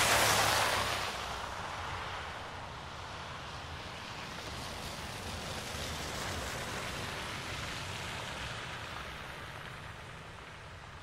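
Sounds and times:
tyres hissing through slush: 0.0s - 1.2s.

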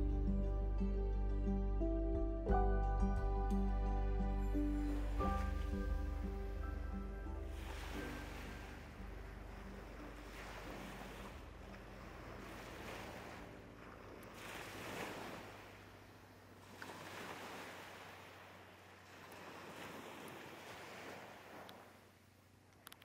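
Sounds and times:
small waves washing ashore: 4.5s - 22.4s.

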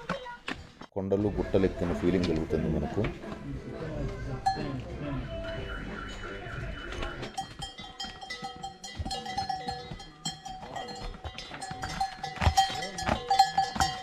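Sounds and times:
livestock bells clanking: 4.4s - 14.0s.

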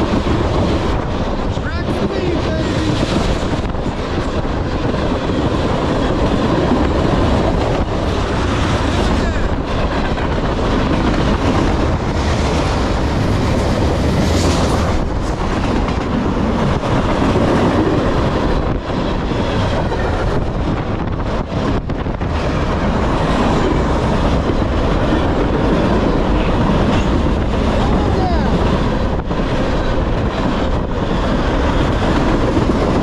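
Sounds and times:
freight train rumbling past: 0.0s - 33.0s.

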